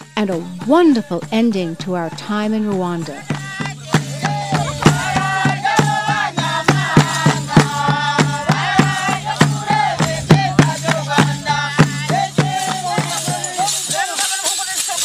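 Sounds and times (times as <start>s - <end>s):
group singing: 0.0s - 15.0s
percussion beats: 0.0s - 15.0s
rattles shaking: 9.0s - 15.0s.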